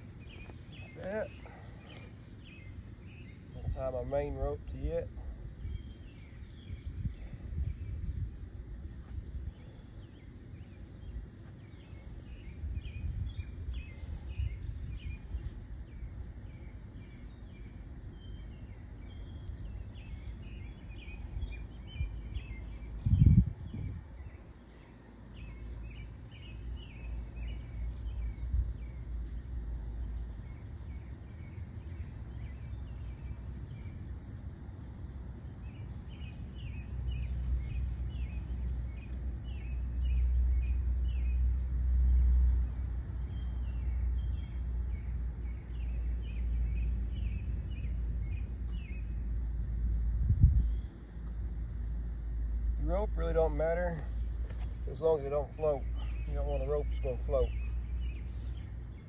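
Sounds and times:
small birds chirping: 0.0 - 59.0
wind rumble on microphone: 4.6 - 24.6, 26.0 - 32.8, 43.3 - 52.8.

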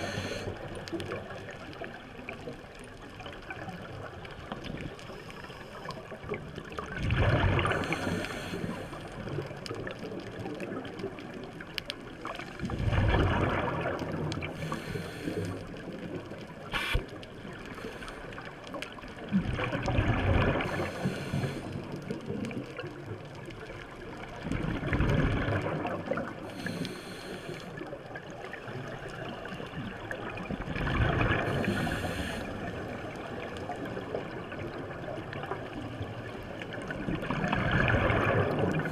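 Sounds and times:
scuba regulator breathing: 0.0 - 0.7, 7.6 - 9.3, 14.5 - 15.9, 16.6 - 18.6, 20.6 - 21.9, 26.4 - 27.9, 31.5 - 32.9
exhaled bubbles gurgling: 0.0 - 38.9
underwater background: 0.0 - 38.9.

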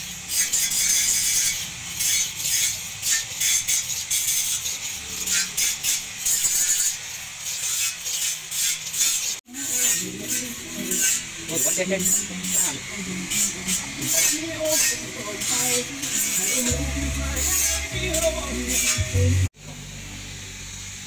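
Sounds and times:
knife scraping on sharpening stone: 0.3 - 19.1.

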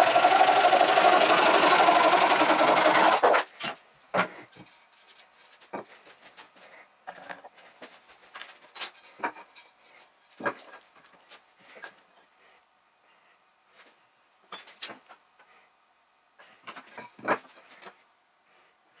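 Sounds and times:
handsaw cutting wood: 0.0 - 3.5.

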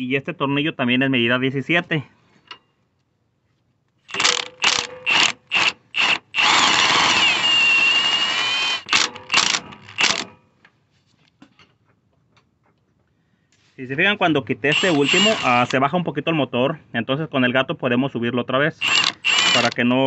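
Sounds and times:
impact wrench bursts: 4.1 - 10.4, 14.7 - 15.8, 18.8 - 19.9.

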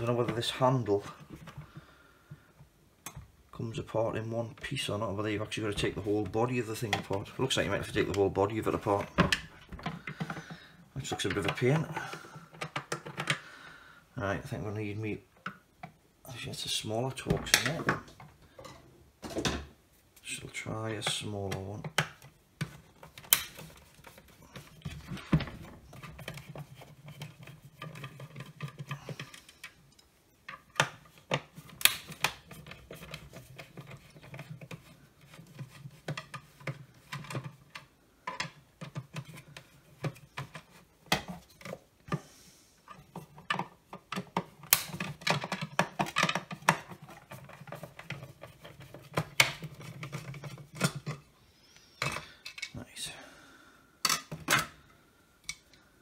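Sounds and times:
tools and parts knocking: 42.9 - 51.2.

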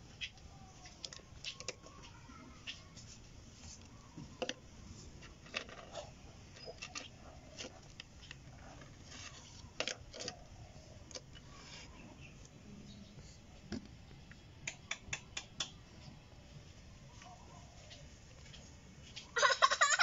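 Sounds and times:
test probes clicking and tapping: 13.7 - 15.8.

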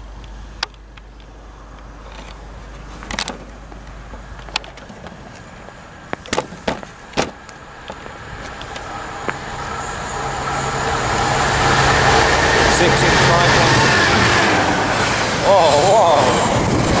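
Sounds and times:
diesel locomotive approaching: 0.0 - 17.0
sharp clicks and knocks: 6.1 - 8.9.

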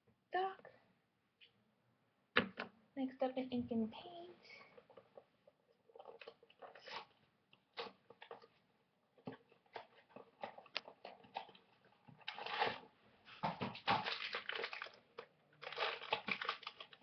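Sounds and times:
packaging crinkling and rustling: 9.4 - 17.0.

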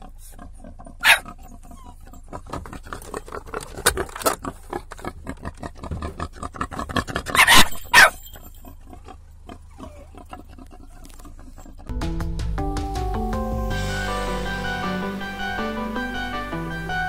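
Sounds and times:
wild boar grunting and snuffling: 0.0 - 11.9.

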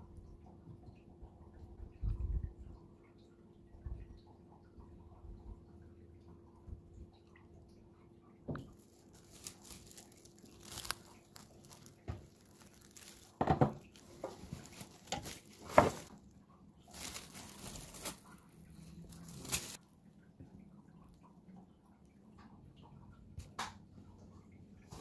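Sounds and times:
cling film rustling: 8.6 - 16.2, 16.9 - 19.8.

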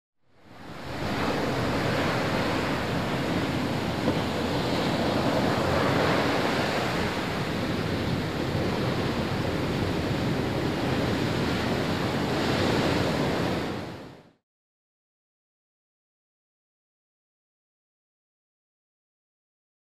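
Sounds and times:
waves washing on shore: 0.4 - 14.3.

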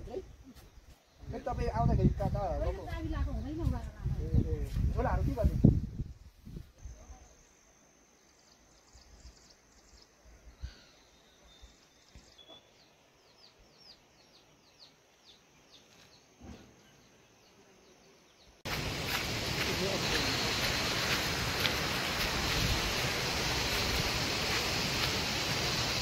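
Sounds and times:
bird chirping: 6.8 - 21.6
high insect drone: 18.7 - 26.0.

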